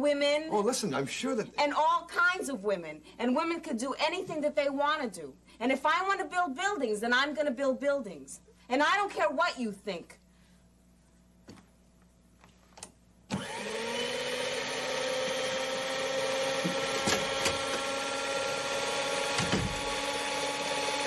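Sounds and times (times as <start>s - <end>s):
stand mixer motor whining: 13.3s - 21.0s.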